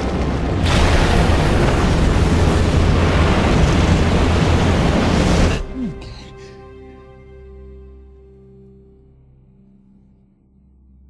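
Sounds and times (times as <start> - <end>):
roar of explosions: 0.0 - 5.8.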